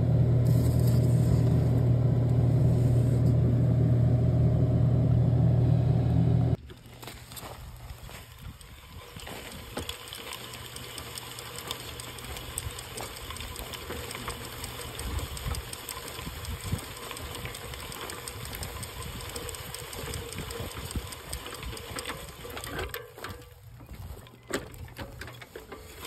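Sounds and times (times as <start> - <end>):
seeder clicking and rattling: 7.9 - 26.0.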